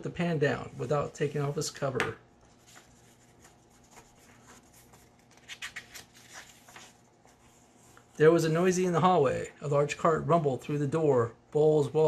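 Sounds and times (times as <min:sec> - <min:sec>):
paper page rustling: 0:02.4 - 0:08.0.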